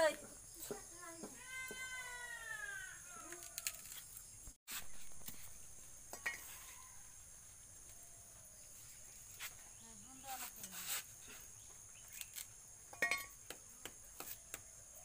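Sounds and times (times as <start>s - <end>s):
coconut husk clicks and rustles: 3.2s - 4.2s, 12.0s - 12.6s.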